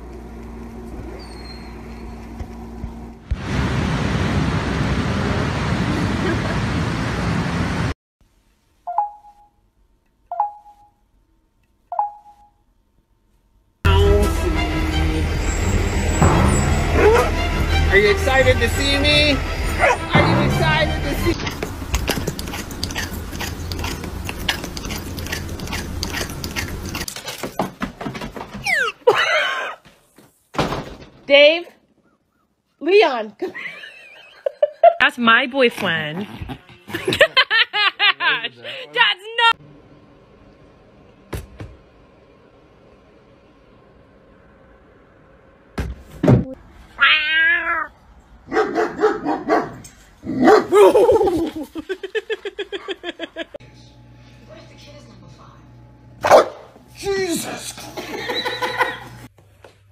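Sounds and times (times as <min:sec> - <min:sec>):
cat crunching dry kibble: 0:22.0 - 0:27.1
choppy animal cries: 0:28.6 - 0:29.8
cat meowing: 0:47.0 - 0:47.9.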